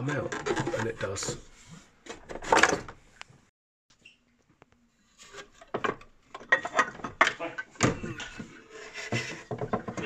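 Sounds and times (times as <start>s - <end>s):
rubbing and knocking: 0.0s - 3.0s, 5.2s - 10.0s
plastic and metal scraping: 0.0s - 3.1s, 5.0s - 10.0s.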